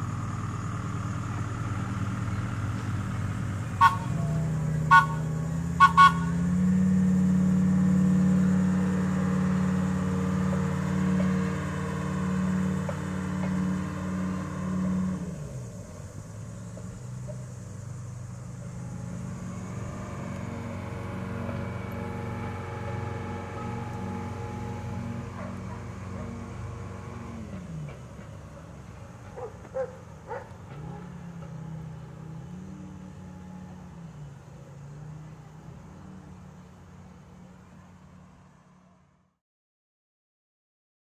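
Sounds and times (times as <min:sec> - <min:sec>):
diesel engine running: 0:00.0 - 0:39.4
short horn toots: 0:03.8 - 0:06.4.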